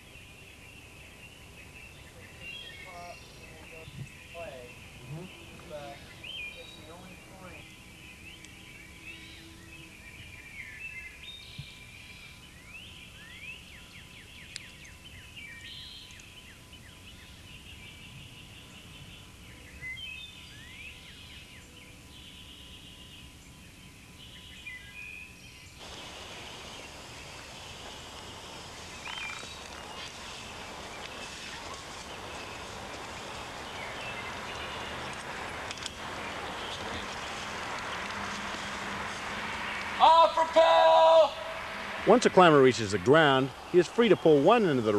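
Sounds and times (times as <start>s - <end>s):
small birds chirping: 0.0s - 44.9s
steady rushing noise: 25.8s - 44.9s.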